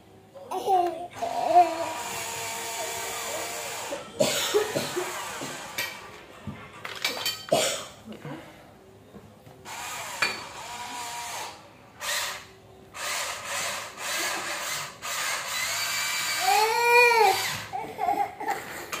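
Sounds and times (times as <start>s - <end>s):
toy excavator motors whirring: 1.2s - 4.1s, 9.6s - 19.0s
small child squealing: 16.2s - 17.9s.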